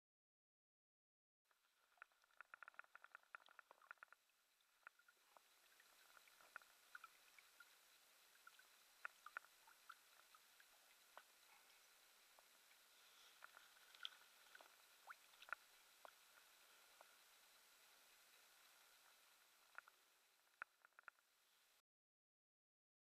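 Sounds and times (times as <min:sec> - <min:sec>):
light water patter: 0:01.5 - 0:21.8
faint hiss: 0:01.6 - 0:21.8
small clicks: 0:01.9 - 0:07.7, 0:08.5 - 0:10.4, 0:19.1 - 0:21.3.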